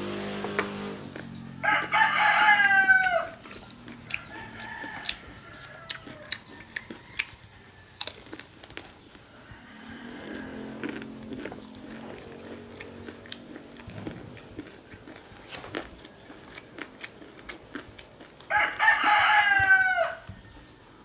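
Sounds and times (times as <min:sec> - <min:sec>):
crunching of fried chicken: 0:01.0 - 0:20.7
rooster crowing: 0:01.4 - 0:03.4, 0:04.0 - 0:08.4, 0:09.3 - 0:12.6, 0:18.5 - 0:21.0.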